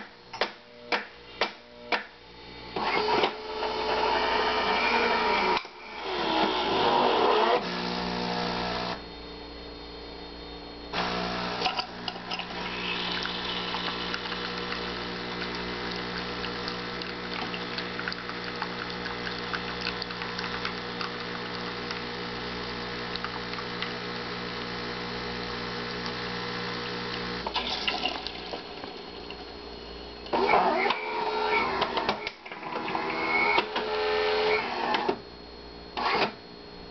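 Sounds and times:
espresso machine pump humming: 2.5 - 9.5, 10.5 - 34.8
coffee pouring into cups: 11.0 - 29.6.

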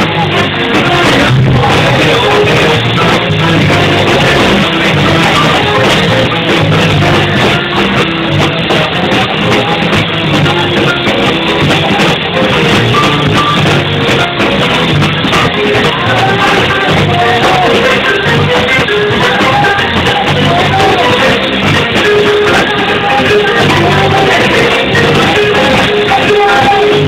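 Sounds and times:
electric guitar: 0.0 - 27.0
electric keyboard: 0.0 - 27.0.

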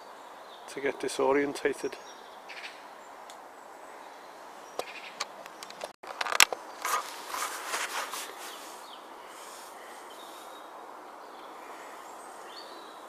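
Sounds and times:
plastic sheets crinkling: 5.8 - 8.6.

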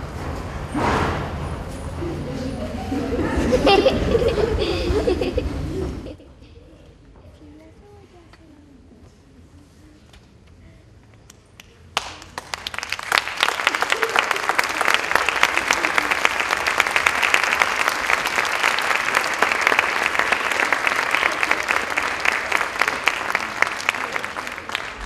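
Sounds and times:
audience applauding: 12.0 - 25.0.

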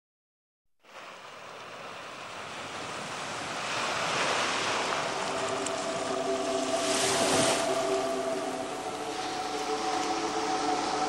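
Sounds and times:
steady multi-tone hum: 4.6 - 11.0.

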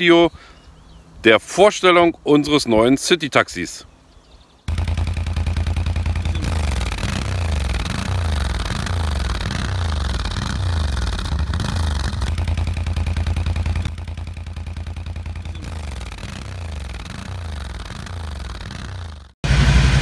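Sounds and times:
atv engine revving: 4.7 - 20.0.

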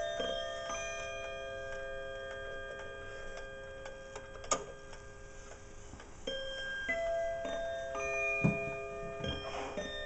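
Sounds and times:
clock chime ringing: 0.0 - 5.5, 6.2 - 10.0
wall clock ticking: 0.0 - 5.7.

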